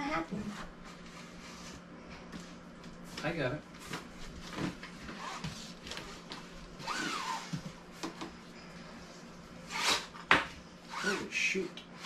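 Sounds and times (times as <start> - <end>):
belt sliding and whirring: 6.8 - 7.6.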